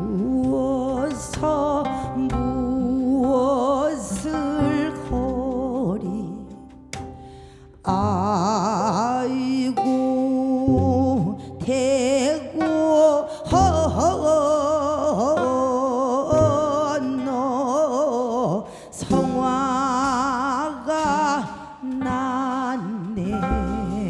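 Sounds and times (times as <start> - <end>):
woman singing with vibrato: 0.0 - 6.7, 7.8 - 24.0
double bass: 0.0 - 24.0
singer breathing: 7.2 - 7.8, 18.6 - 19.0.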